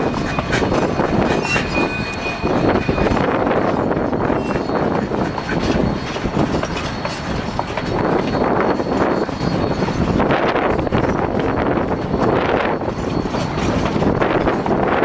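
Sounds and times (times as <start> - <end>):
steam locomotive exhaust: 0.0 - 15.0
train cars rolling on rails: 0.0 - 15.0.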